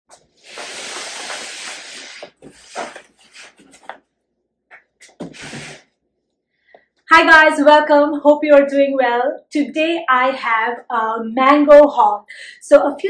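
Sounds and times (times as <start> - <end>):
cardboard box scraping on floor: 0.4 - 4.0, 5.2 - 5.8.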